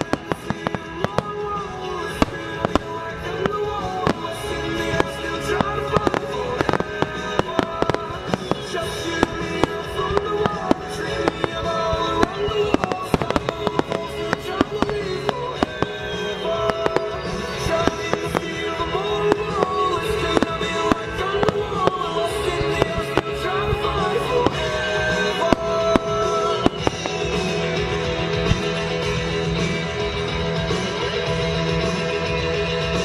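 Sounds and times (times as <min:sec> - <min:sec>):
fireworks bangs and crackling: 0:00.0 - 0:33.0
music playing: 0:00.0 - 0:33.0.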